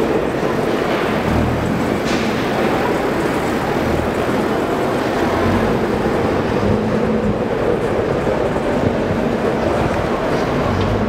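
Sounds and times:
car engine running at low revs: 0:02.9 - 0:11.0.

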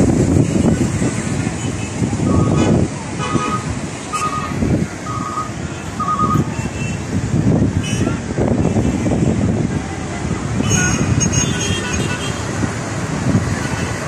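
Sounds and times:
wind buffeting microphone: 0:00.0 - 0:14.0
short electronic beeps: 0:05.1 - 0:06.4.

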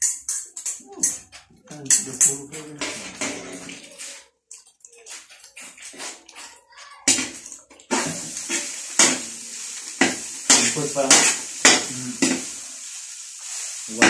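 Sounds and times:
metal spatula scraping a wok: 0:02.8 - 0:04.2, 0:07.1 - 0:14.0
food sizzling in a wok: 0:07.0 - 0:14.0.

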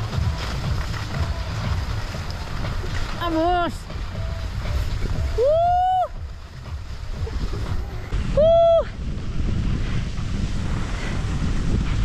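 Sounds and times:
wind buffeting microphone: 0:00.0 - 0:12.0
high-pitched swooping whoop: 0:05.3 - 0:06.2, 0:08.3 - 0:09.0.

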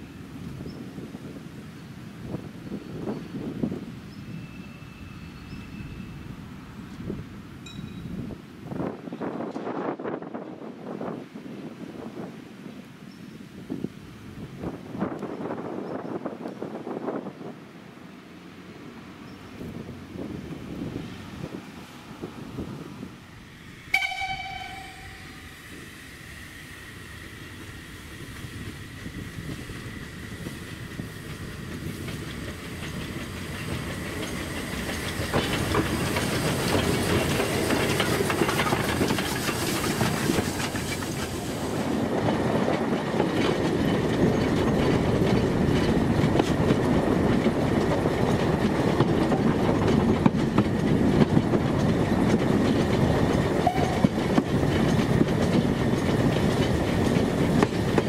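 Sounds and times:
steam locomotive running: 0:22.2 - 0:58.0
train wheels clickety-clack: 0:27.0 - 0:58.0.

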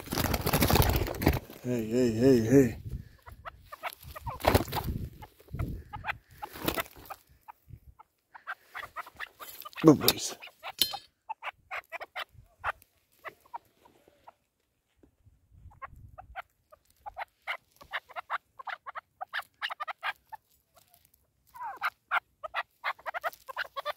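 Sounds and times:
partridge clucking calls: 0:00.0 - 0:14.4, 0:15.6 - 0:23.9.

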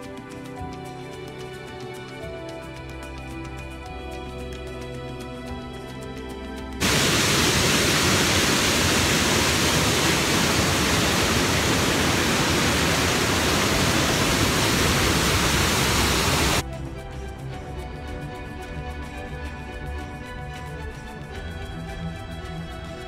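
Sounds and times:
background music: 0:00.0 - 0:23.0
waterfall rushing: 0:06.8 - 0:16.6.

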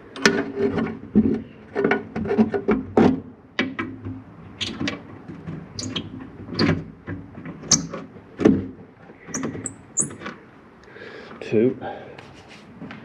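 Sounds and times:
high squeaks: 0:04.6 - 0:04.8, 0:05.8 - 0:06.7, 0:07.7 - 0:08.0, 0:09.2 - 0:10.2
spanner scraping on nut: 0:05.8 - 0:06.7, 0:07.7 - 0:08.0, 0:09.3 - 0:10.2.

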